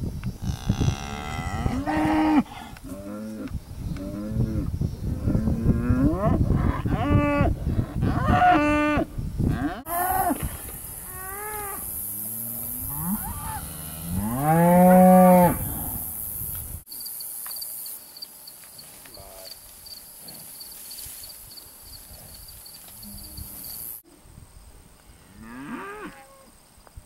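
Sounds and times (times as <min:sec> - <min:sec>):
cattle mooing: 0:12.6 - 0:16.2.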